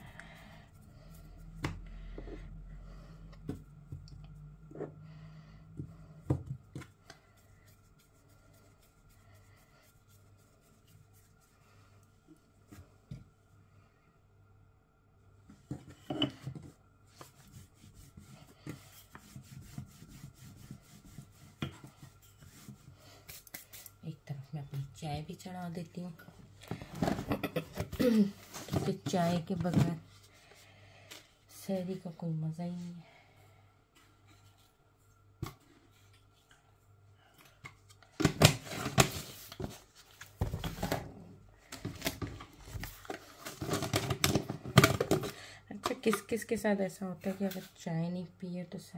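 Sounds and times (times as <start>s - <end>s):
hands rubbing dough: 5.8s - 13.0s, 17.0s - 24.0s.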